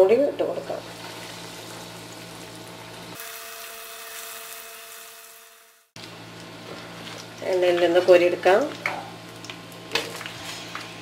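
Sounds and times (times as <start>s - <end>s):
oil sizzling in a frying pan: 0.6s - 7.4s.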